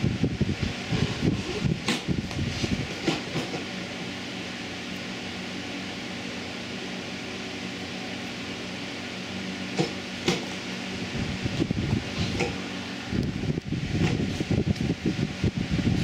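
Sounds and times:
fan humming with hiss: 0:00.0 - 0:16.0.

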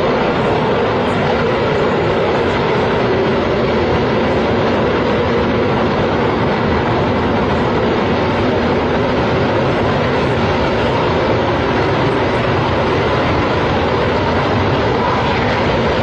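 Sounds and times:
steady loud roar: 0:00.0 - 0:16.0.

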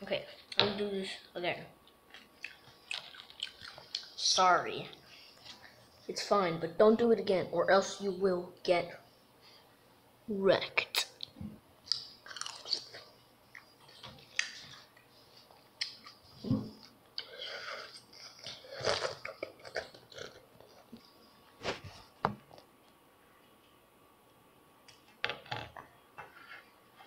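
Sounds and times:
crunchy open-mouthed chewing: 0:02.1 - 0:04.2, 0:11.9 - 0:16.2, 0:17.2 - 0:21.1.

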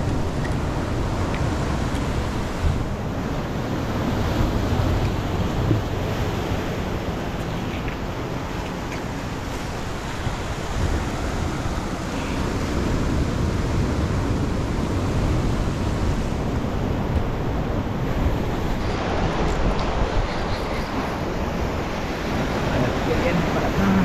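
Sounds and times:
surf breaking on rocky shore: 0:00.0 - 0:24.0
wind rumbling on microphone: 0:00.0 - 0:24.0.

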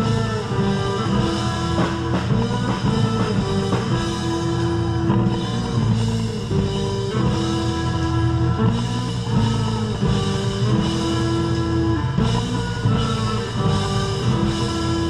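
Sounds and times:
bass guitar: 0:00.0 - 0:15.0
drum kit: 0:00.0 - 0:15.0
electric guitar: 0:00.0 - 0:15.0
horns holding long notes: 0:00.0 - 0:15.0.

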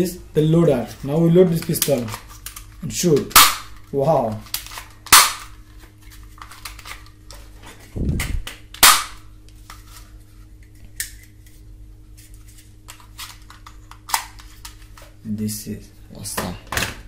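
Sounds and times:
toy gun shot crack: 0:03.3 - 0:03.7, 0:05.1 - 0:05.5, 0:08.8 - 0:09.2.

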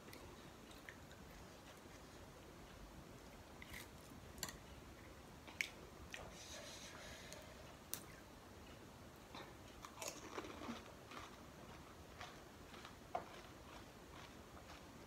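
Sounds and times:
wet chewing: 0:09.8 - 0:14.9
crisp shells crunching in mouth: 0:09.9 - 0:11.4.

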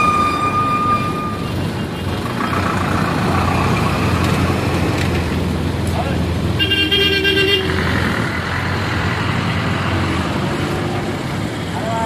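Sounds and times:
steady high tone: 0:00.0 - 0:01.8
bus engine and road noise: 0:00.0 - 0:12.0
bus passing close: 0:00.0 - 0:12.0.

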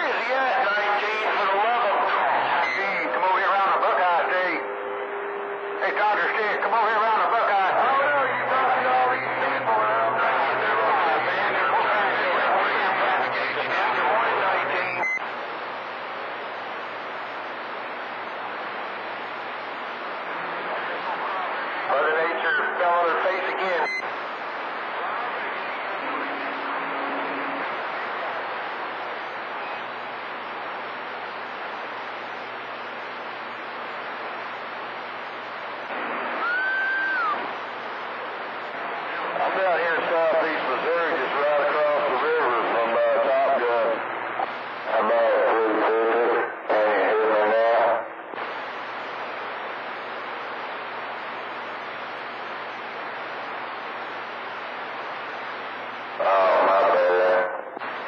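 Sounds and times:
distant radio voice: 0:00.0 - 0:04.8, 0:05.8 - 0:15.1, 0:20.3 - 0:26.4, 0:38.4 - 0:48.5, 0:56.0 - 0:58.0
radio static hiss: 0:00.0 - 0:58.0
rising radio tone: 0:35.3 - 0:48.1.

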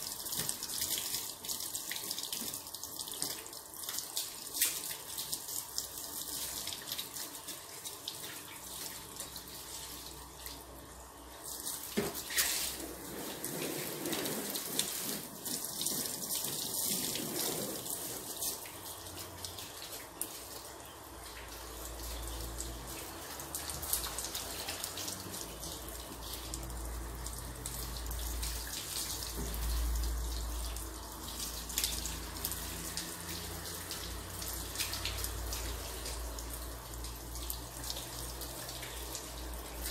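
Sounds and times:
water spraying on car: 0:11.4 - 0:39.9.

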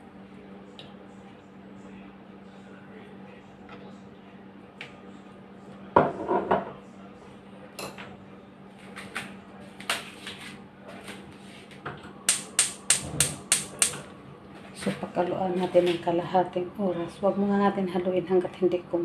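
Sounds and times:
kitchenware clattering: 0:06.0 - 0:06.7
gas stove igniter clicking: 0:12.3 - 0:14.0.

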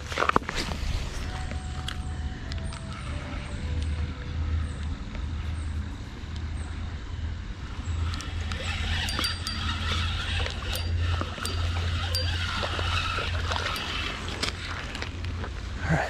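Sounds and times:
steady low rumble: 0:00.0 - 0:16.0
spinning reel cranking: 0:08.0 - 0:15.2.

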